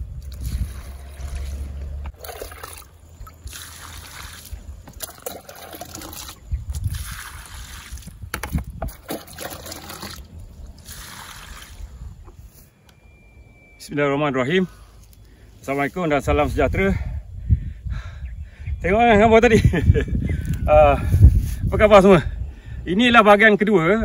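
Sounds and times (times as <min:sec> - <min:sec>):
low rumble: 0:00.0 - 0:02.2
water splashing on ground: 0:00.2 - 0:12.0.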